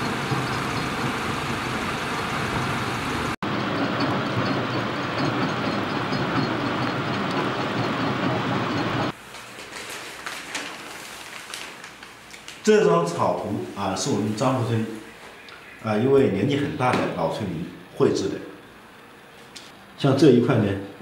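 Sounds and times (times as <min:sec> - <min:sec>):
crushing and conveyor machinery: 0:00.0 - 0:09.2.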